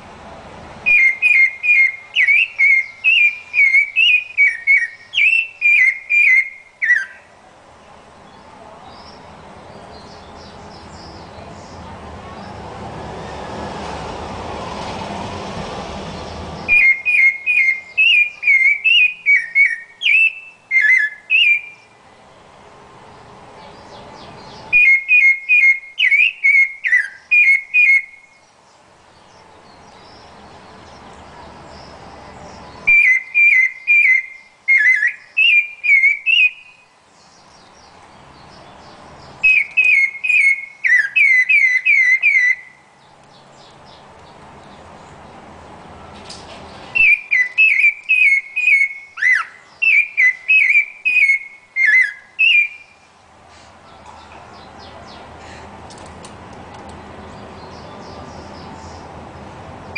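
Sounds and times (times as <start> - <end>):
thrush singing fluty whistles: 0.8 - 7.3, 16.7 - 21.9, 24.6 - 28.5, 32.8 - 36.9, 39.4 - 42.9, 46.9 - 53.1
rushing noise: 11.8 - 17.0.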